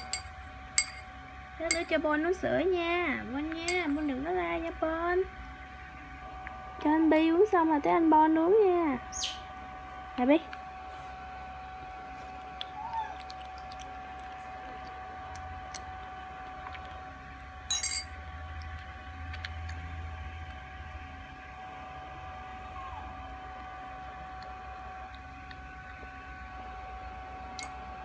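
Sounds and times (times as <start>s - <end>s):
metal spoon clinking container: 0.0s - 1.1s, 1.7s - 2.0s, 3.6s - 4.1s, 17.7s - 18.2s
background hum with high tone: 0.0s - 28.0s.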